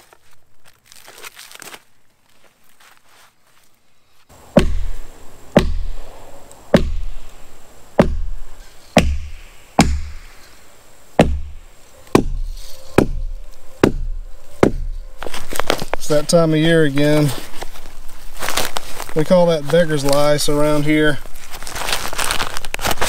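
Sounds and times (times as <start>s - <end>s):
axe chopping log: 4.5s - 6.0s, 6.7s - 7.3s, 8.0s - 8.4s, 9.0s - 10.4s, 11.2s - 15.0s.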